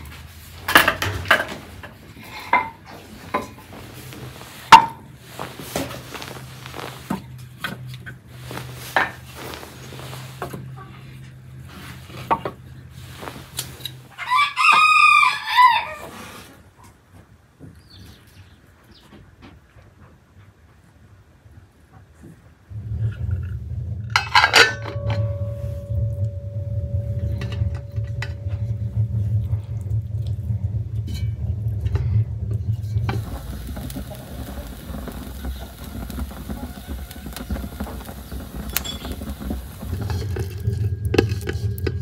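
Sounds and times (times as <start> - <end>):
crackling hiss: 0.0 - 14.2, 25.5 - 42.0
steady low rumble: 0.0 - 14.3, 22.7 - 42.0
rooster crowing: 14.1 - 16.2, 36.5 - 38.9.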